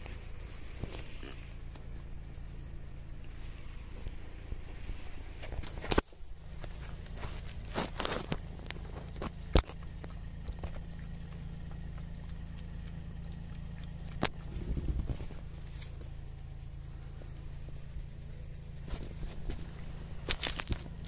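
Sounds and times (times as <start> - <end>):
soft rustling: 0.0 - 2.0, 3.2 - 10.0, 18.8 - 21.0
low steady hum: 0.0 - 21.0
cat eating from plastic bowl: 6.8 - 16.0.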